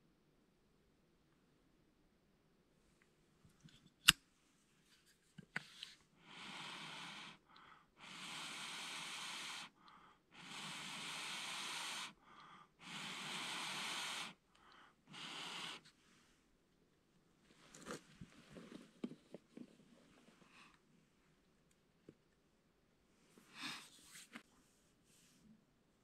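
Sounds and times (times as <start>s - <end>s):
person blowing long breaths: 6.2s - 15.8s.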